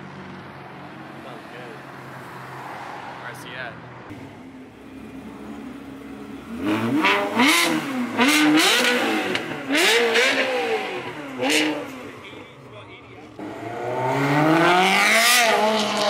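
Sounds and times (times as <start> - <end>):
car engine revving: 0.0 - 16.0
car engine idling: 4.1 - 13.5.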